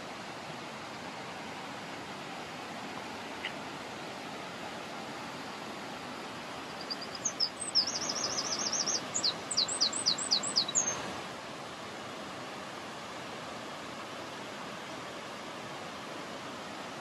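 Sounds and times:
songbird singing: 5.3s - 11.2s.

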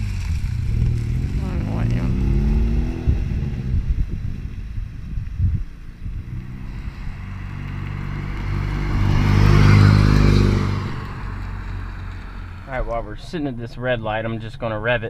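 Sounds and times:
car exhaust driving past: 0.0s - 13.3s.

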